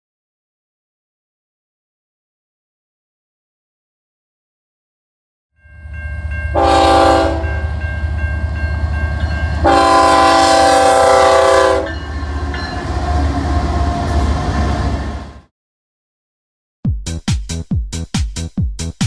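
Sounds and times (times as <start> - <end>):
faint crossing bell ringing: 5.6 - 9.8, 11.8 - 13.0
train horn blasts: 6.5 - 15.4.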